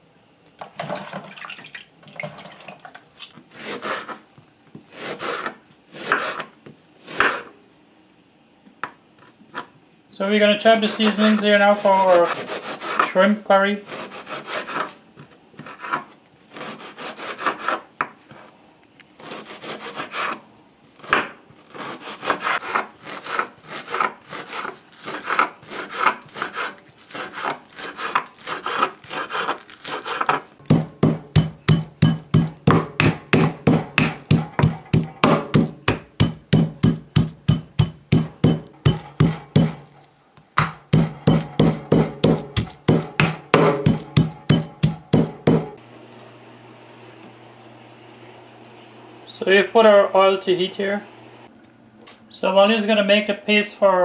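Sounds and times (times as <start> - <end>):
knife chopping on wooden board: 4.8 - 7.5, 13.9 - 18.2, 21.0 - 39.9, 40.6 - 45.8
pestle pounding in stone mortar: 25.2 - 39.9, 40.6 - 45.8.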